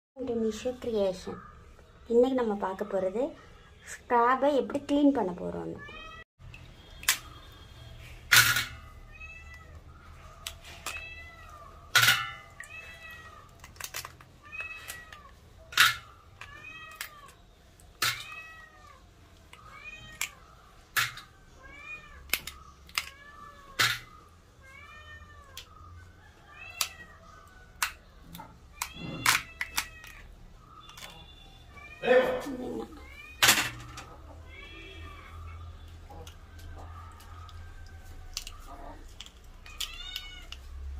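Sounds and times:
cat mewing: 28.8s - 30.3s, 31.7s - 35.6s.

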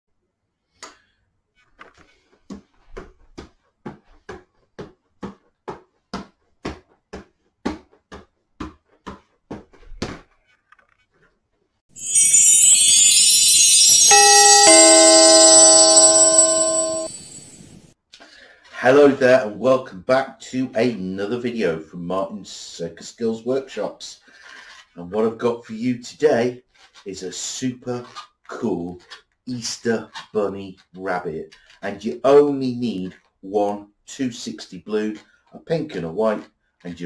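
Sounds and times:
falling two-note chime: 12.0s - 17.8s
shimmering intro sound effect: 12.0s - 17.9s.

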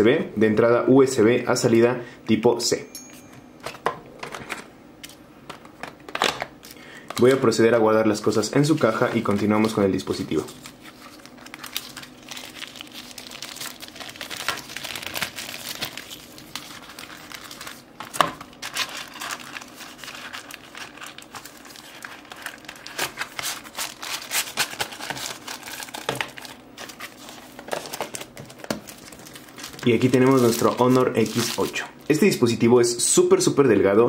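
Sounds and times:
plastic and paper crinkling: 8.3s - 32.3s.

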